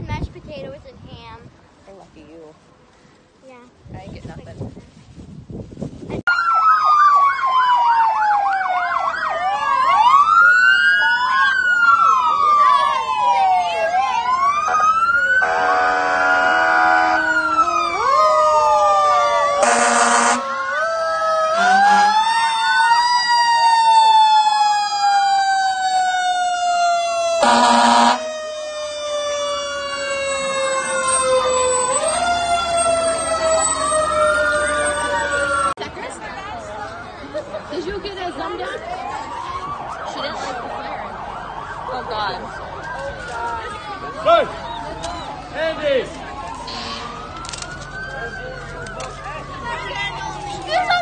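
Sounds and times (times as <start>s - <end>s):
fast yelping siren: 6.3s - 35.8s, 38.6s - 45.5s, 46.4s - 51.0s
wailing sirens: 6.3s - 35.8s, 38.1s - 51.0s
air horn blast: 15.4s - 17.3s, 19.6s - 20.5s, 21.6s - 22.2s, 27.4s - 28.2s.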